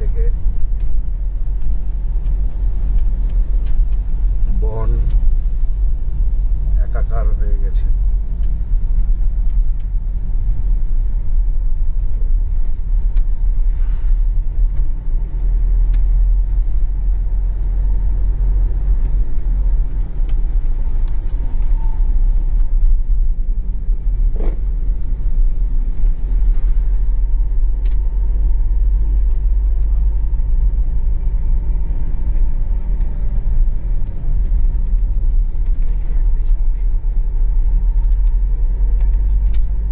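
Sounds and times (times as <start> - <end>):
car engine and tyres rumbling: 0.0 - 39.9
faint ticks: 15.7 - 23.6.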